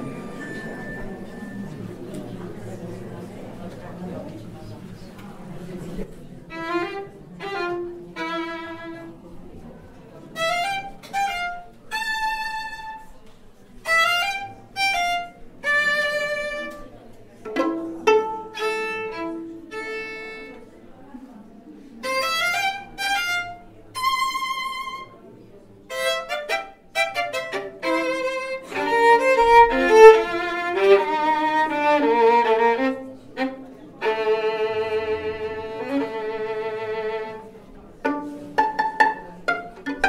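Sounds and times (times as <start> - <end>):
solo violin: 6.5 - 9.2, 10.3 - 13.1, 13.8 - 20.7, 22.0 - 25.2, 25.9 - 40.0.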